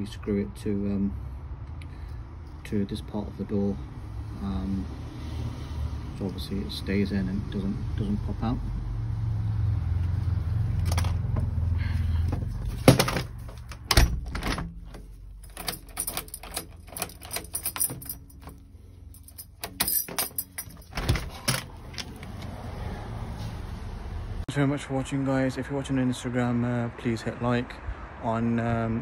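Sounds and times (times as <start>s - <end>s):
door lock clicking and clacking: 12.9s - 18.6s, 19.5s - 22.5s
keys jangling: 13.0s - 22.4s.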